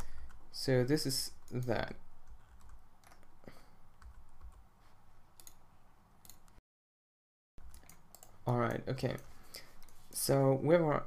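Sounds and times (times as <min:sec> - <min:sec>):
keyboard and mouse clicks: 0:02.3 - 0:03.4, 0:05.4 - 0:05.6, 0:06.2 - 0:06.6, 0:07.6 - 0:10.0.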